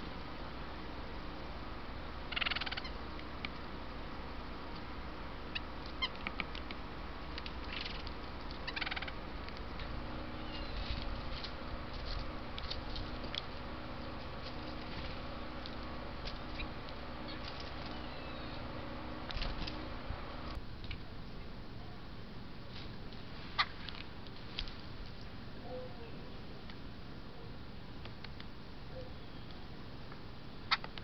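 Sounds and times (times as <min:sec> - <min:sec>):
woodpecker churr calls: 0:02.2 - 0:03.1, 0:05.4 - 0:06.5, 0:07.6 - 0:11.0, 0:15.4 - 0:18.8.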